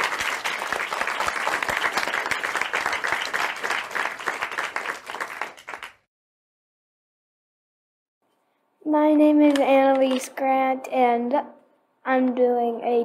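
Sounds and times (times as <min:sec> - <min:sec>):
crowd applauding: 0:00.0 - 0:06.1.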